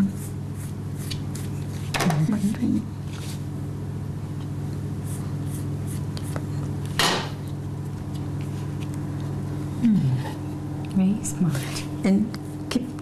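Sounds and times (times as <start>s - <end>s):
low electrical hum: 0.0s - 13.0s
pastry rustle: 1.0s - 3.5s.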